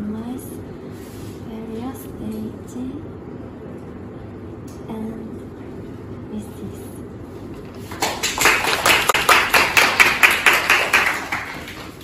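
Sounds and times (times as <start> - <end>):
students applauding: 7.9 - 12.0.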